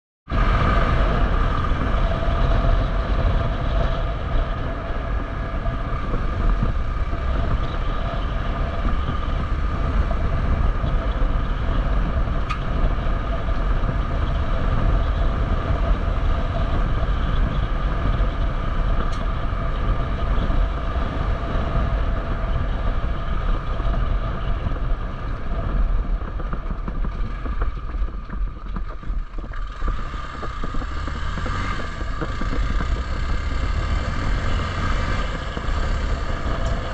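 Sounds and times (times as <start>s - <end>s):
heavy low rumble: 0.3s - 36.9s
motorcycle engine running: 0.3s - 36.9s.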